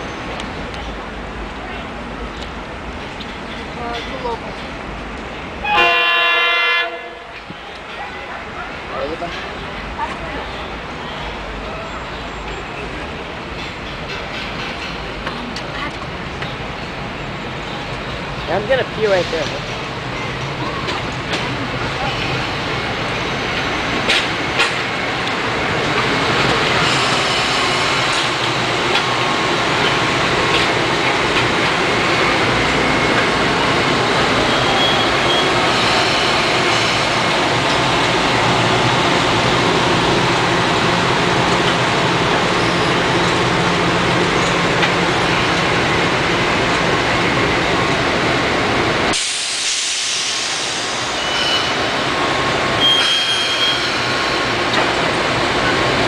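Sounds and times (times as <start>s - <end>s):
train wheels rushing on rail: 0.0s - 56.0s
hiss: 49.1s - 51.3s.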